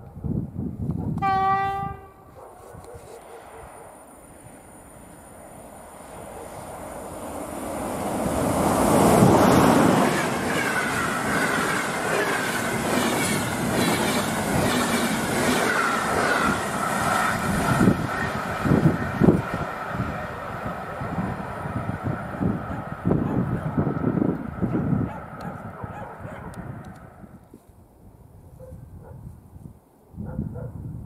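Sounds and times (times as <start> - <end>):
wheels on rail: 2.8 - 27.5
electric train passing at speed: 3.2 - 27.4.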